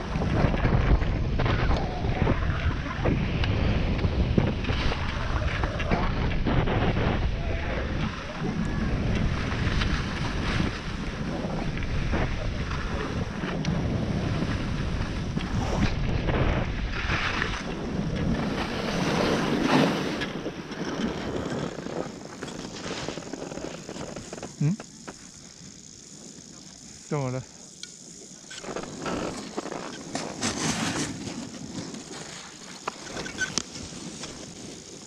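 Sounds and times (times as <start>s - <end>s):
wind on microphone: 0.0s - 24.6s
skis scraping on snow: 0.0s - 27.4s, 28.4s - 35.0s.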